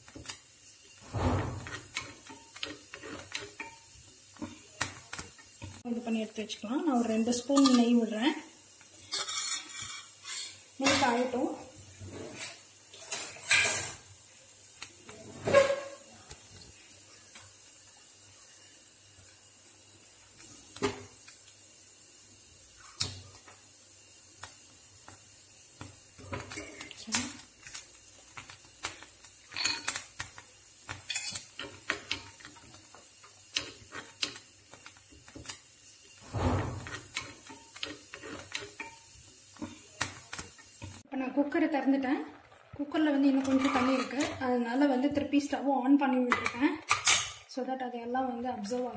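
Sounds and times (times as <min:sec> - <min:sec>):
metal spoon clinking in pan: 0:07.4 - 0:08.0, 0:29.5 - 0:30.1, 0:30.9 - 0:32.4.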